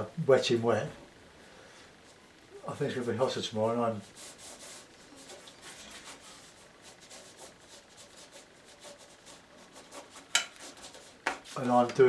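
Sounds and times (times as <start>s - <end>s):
graphite scratching on paper: 4.0s - 11.8s.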